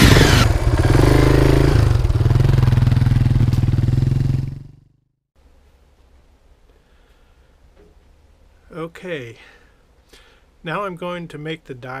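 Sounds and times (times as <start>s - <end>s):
motorcycle engine revving: 0.0s - 5.0s.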